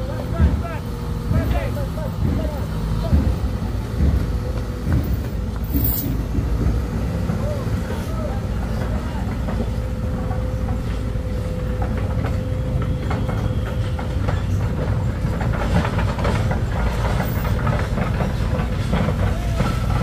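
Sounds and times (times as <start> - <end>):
large engine running: 0.0 - 20.0
metallic clanks and rattles: 2.2 - 6.9.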